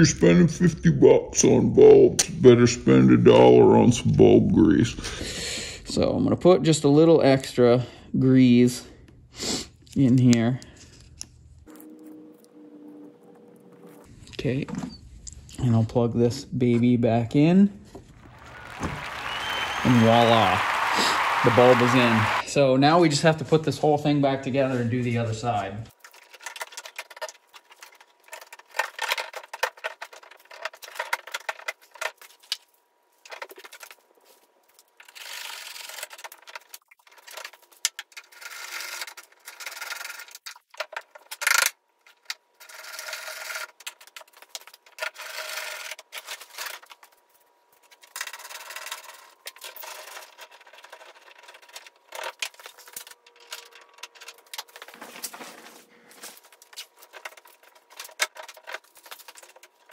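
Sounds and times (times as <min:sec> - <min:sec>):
plastic parts rubbing and scraping: 0:25.9 - 0:59.9.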